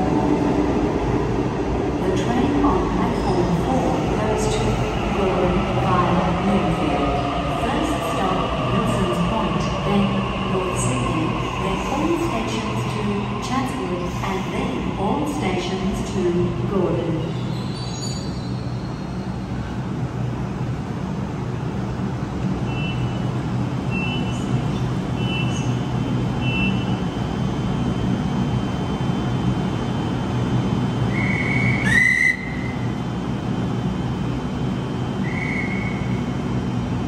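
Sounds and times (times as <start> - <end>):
shrill whistle blast: 31.1 - 32.7, 35.3 - 36.0.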